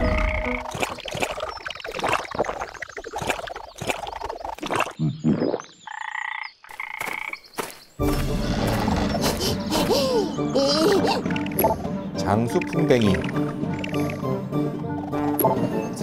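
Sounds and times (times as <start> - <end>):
frog croaking: 4.8 - 7.4
music: 8.0 - 16.0.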